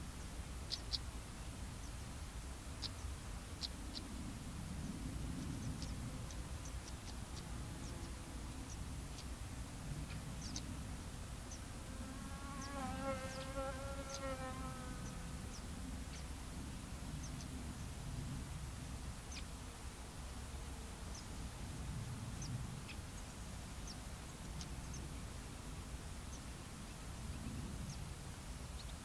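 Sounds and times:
flying insect buzzing: 0:11.8 - 0:15.6.

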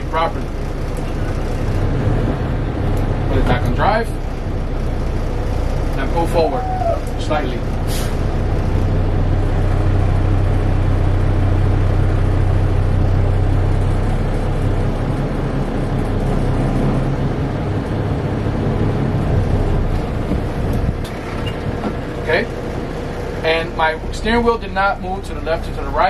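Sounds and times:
diesel truck engine running: 0:00.0 - 0:26.0.

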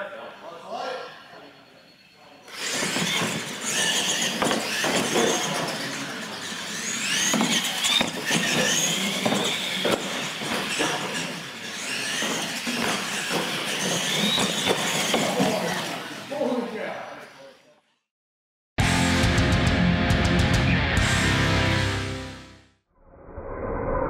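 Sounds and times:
toy truck motors whining: 0:02.4 - 0:17.7
tires squealing on concrete: 0:02.5 - 0:17.6.

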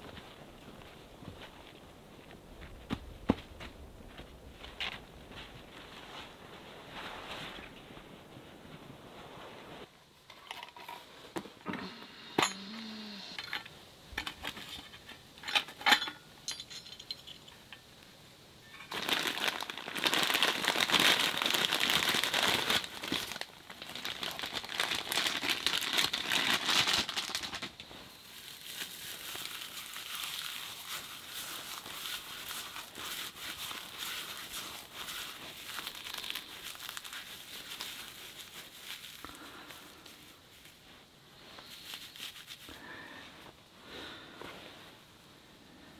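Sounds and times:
plastic bag crinkling: 0:18.8 - 0:40.9, 0:41.5 - 0:42.8
dry tinder rustling between hands: 0:18.8 - 0:43.6.

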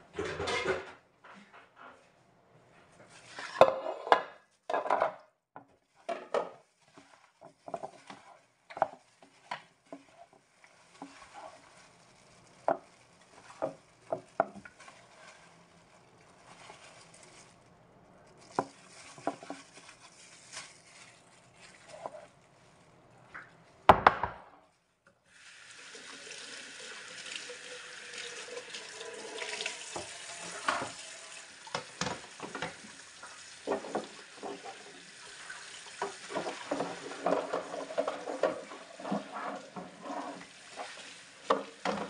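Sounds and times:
plastic gloves rustling: 0:02.8 - 0:03.8, 0:05.6 - 0:23.9
knocks and clatters in bowl: 0:33.6 - 0:34.8, 0:36.0 - 0:39.9.

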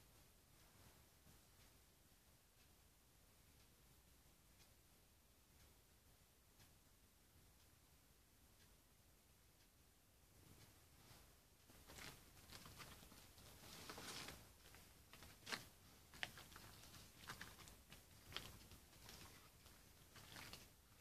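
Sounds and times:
soft rustling: 0:00.0 - 0:01.9, 0:10.2 - 0:21.0.

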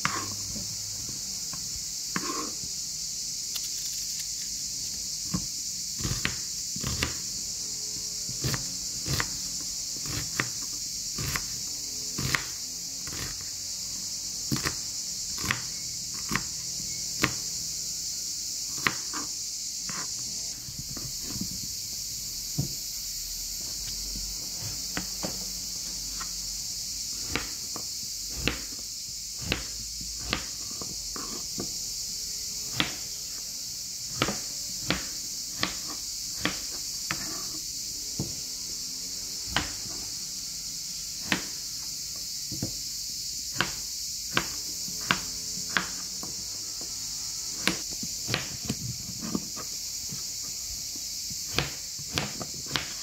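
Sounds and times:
knife cutting on plastic board: 0:00.0 - 0:02.7, 0:04.9 - 0:07.4, 0:08.0 - 0:13.5, 0:14.5 - 0:17.7, 0:18.7 - 0:21.6, 0:23.7 - 0:26.3, 0:27.1 - 0:28.8, 0:29.4 - 0:31.8, 0:32.6 - 0:33.4, 0:34.1 - 0:38.5, 0:39.5 - 0:40.2, 0:41.2 - 0:41.6, 0:43.5 - 0:46.4, 0:47.5 - 0:50.2, 0:51.4 - 0:53.0
steady high hiss: 0:00.0 - 0:09.2.

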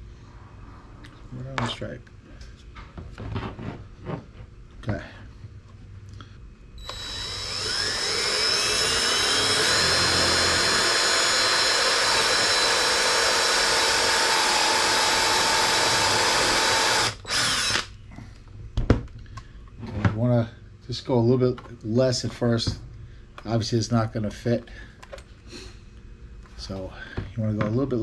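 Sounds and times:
cordless drill drilling: 0:06.8 - 0:17.9.

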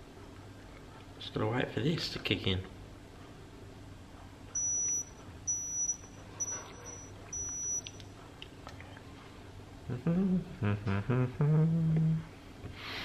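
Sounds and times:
thermometer high-pitched beeps: 0:04.6 - 0:08.0.

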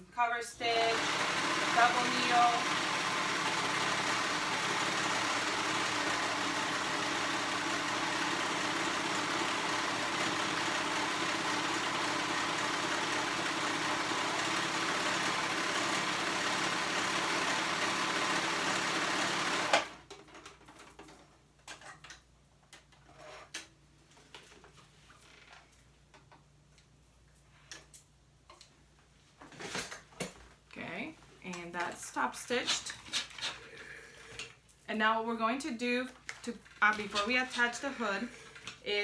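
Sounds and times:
sewing machine running: 0:00.7 - 0:20.0.

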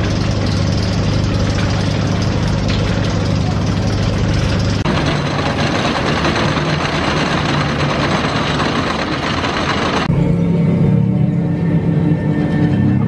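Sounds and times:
roller coaster rattling: 0:04.8 - 0:10.1.

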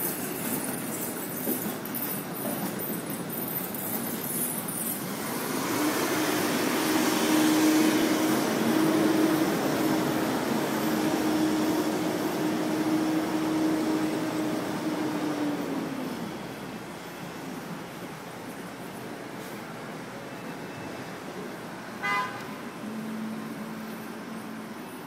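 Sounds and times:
delivery truck passing: 0:04.0 - 0:20.3.

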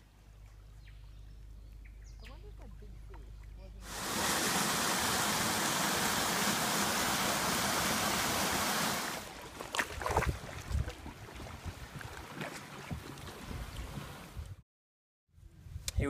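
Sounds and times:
waterfall rushing: 0:03.8 - 0:09.3.

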